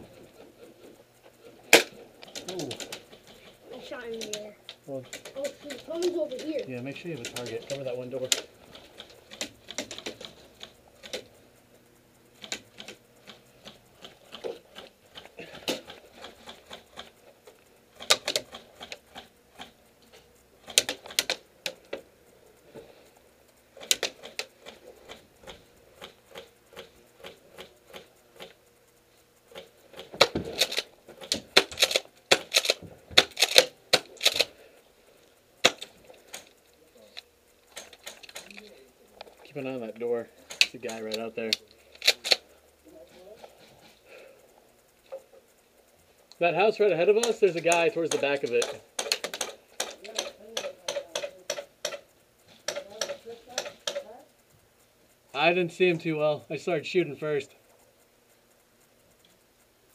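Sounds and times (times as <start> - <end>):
airsoft gunfire: 1.7 - 3.1, 30.0 - 34.5, 35.6 - 36.0.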